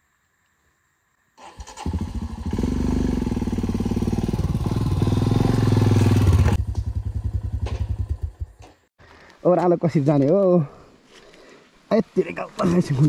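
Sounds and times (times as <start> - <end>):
motorcycle engine thumping: 3.4 - 8.9.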